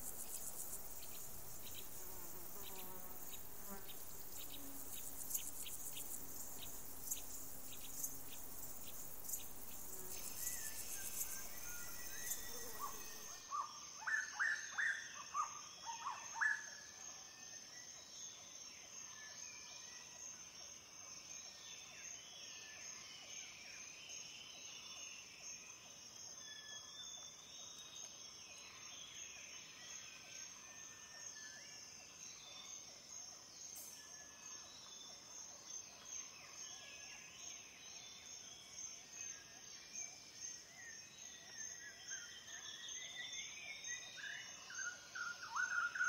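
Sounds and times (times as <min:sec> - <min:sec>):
insect buzzing: 0:00.0 - 0:13.4
high insect drone: 0:00.0 - 0:13.6.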